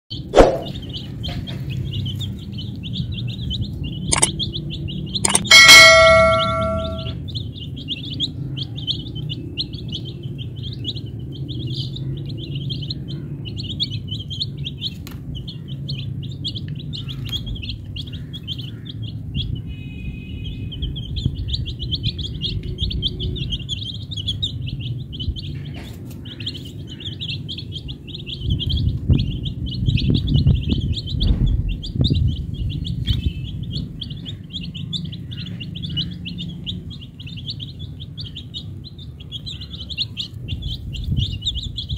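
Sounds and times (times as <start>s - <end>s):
chicks peeping: 0.1s - 41.9s
low rumbling noise: 26.5s - 41.9s.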